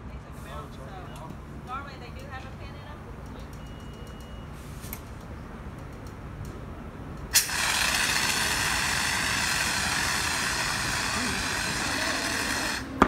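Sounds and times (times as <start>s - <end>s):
fire extinguisher valve pop: 7.3s - 9.3s
fire extinguisher hissing: 7.3s - 13.0s.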